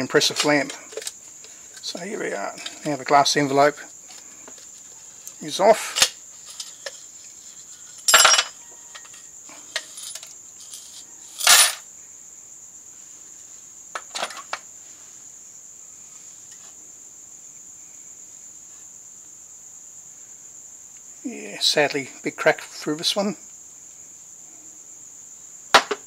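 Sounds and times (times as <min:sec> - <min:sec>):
plastic parts knocking and clinking: 0:00.3 - 0:01.9, 0:13.9 - 0:14.6.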